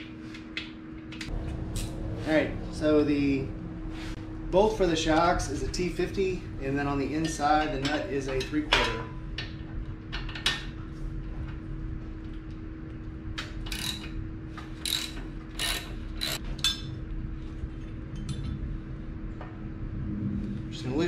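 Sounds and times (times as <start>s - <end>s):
hand ratchet clicking: 13.6s - 14.1s, 14.8s - 16.4s.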